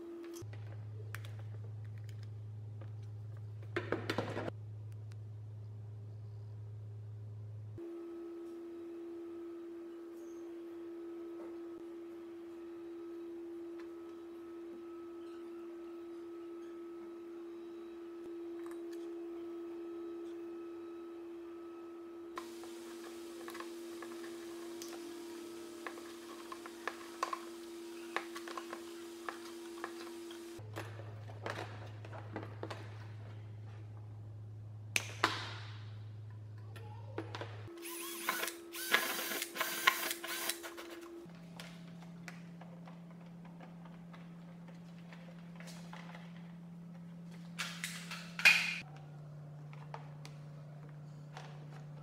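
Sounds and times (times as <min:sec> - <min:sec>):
steady low hum: 0:04.5 - 0:30.7.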